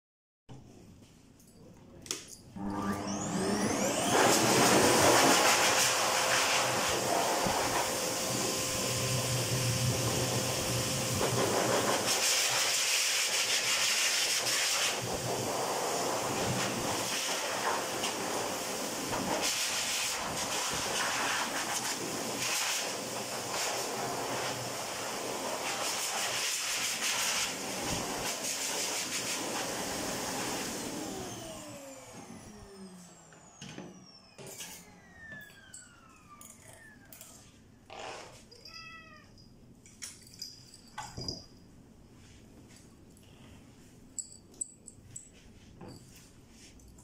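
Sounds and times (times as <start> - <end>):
dryer motor spinning down: 2.6 - 11.8, 29.6 - 37.5
pet dryer blowing air: 2.6 - 37.0
cat meowing: 38.5 - 39.4.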